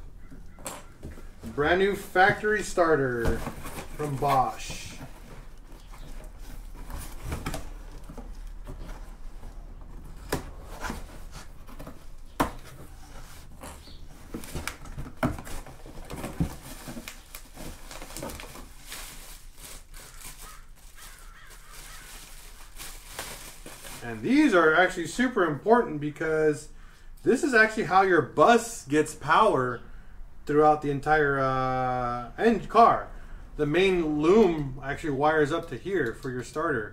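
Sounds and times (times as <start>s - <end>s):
paper and plastic rustling: 0.9s - 25.0s.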